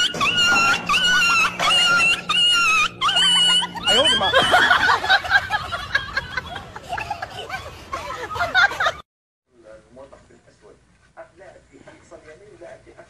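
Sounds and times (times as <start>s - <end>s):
messy lower laughter: 0.0s - 9.0s
shrill squealing laugh: 0.0s - 9.0s.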